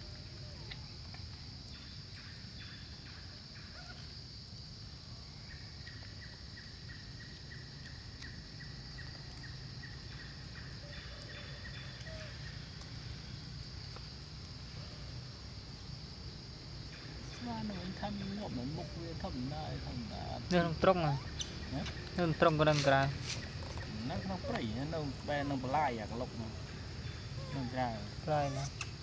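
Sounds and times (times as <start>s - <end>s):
high-pitched insect drone: 16.9s - 29.0s.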